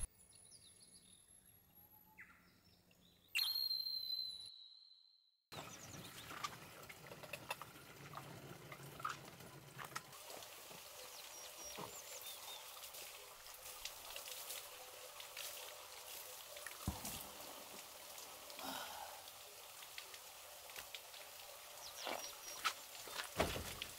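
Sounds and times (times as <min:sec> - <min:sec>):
water trickling from a pipe: 0:05.6 - 0:23.9
small clicks and drips: 0:05.7 - 0:23.9.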